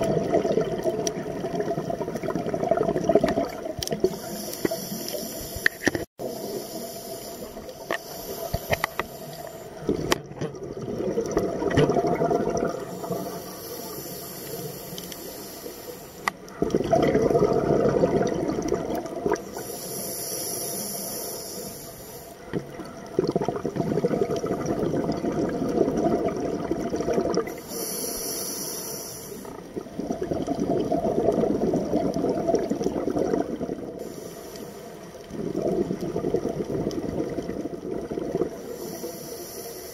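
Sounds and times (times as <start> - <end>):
gurgling exhaled bubbles: 0.0 - 14.7, 16.5 - 19.8, 22.4 - 27.7, 29.3 - 34.1, 35.2 - 39.1
diver breathing through regulator: 4.0 - 9.8, 12.8 - 16.3, 19.4 - 22.4, 27.5 - 29.6, 34.0 - 35.2, 38.6 - 39.9.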